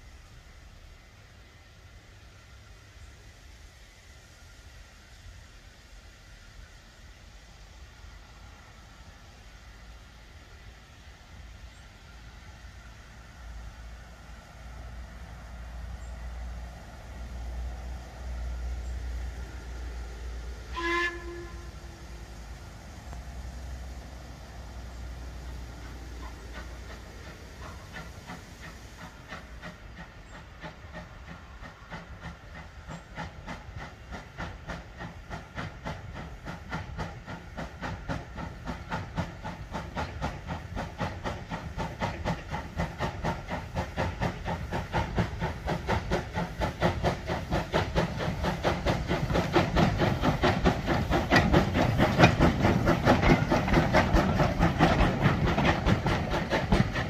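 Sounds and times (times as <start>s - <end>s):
steam engine exhaust chuffing: 15.2s - 57.0s.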